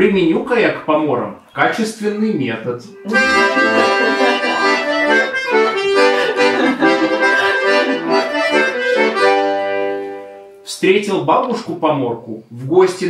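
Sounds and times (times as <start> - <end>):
accordion playing: 2.9 - 10.6.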